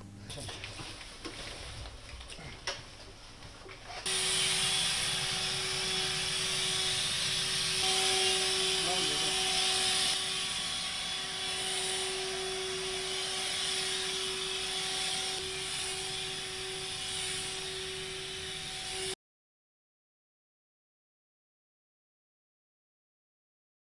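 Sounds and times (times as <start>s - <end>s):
sprayer motor whine: 4.0s - 19.2s.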